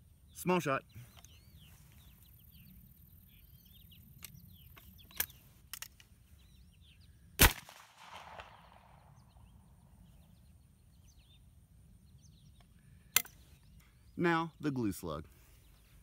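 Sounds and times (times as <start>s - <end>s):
birds chirping: 0.0s - 7.6s, 8.3s - 16.0s
shotgun shot with echo: 7.4s - 9.1s.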